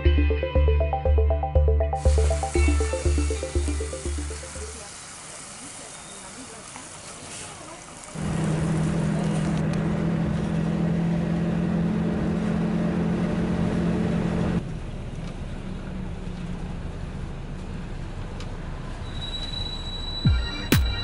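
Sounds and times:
vehicle engine drone: 0:08.2 - 0:19.0.

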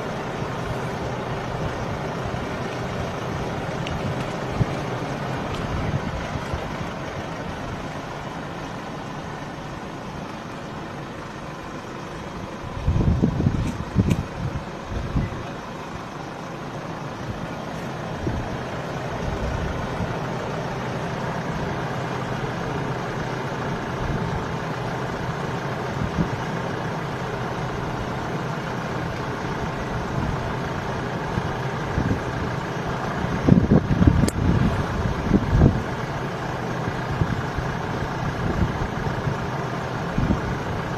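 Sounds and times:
low rumbling bursts: 0:00.0 - 0:24.5
engines idling in traffic: 0:00.0 - 0:40.9.

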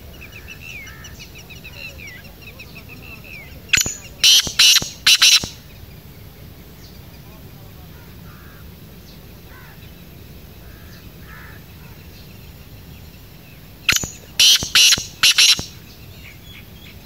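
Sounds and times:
faint distant bird chirps: 0:00.0 - 0:17.0
bird harsh grating call: 0:03.7 - 0:05.6, 0:13.9 - 0:15.8.

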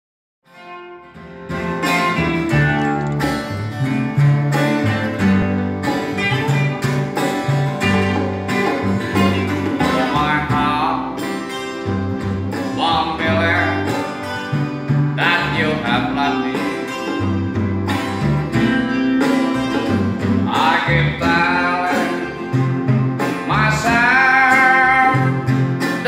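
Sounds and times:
plucked guitar: 0:00.5 - 0:26.0
bass notes: 0:00.9 - 0:26.0.

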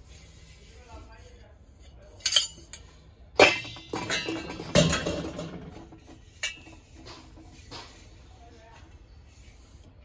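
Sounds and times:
brass pots clinking and knocking: 0:03.4 - 0:07.2.

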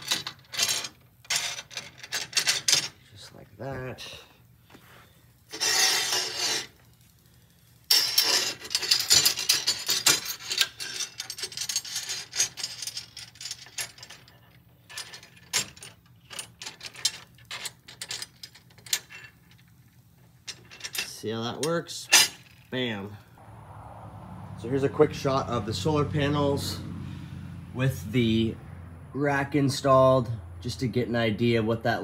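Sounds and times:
metal hardware clinking and scraping: 0:00.0 - 0:03.1, 0:05.4 - 0:06.9, 0:07.8 - 0:22.9
metal rasping slide: 0:05.5 - 0:06.8
metal rattling: 0:07.9 - 0:21.2.

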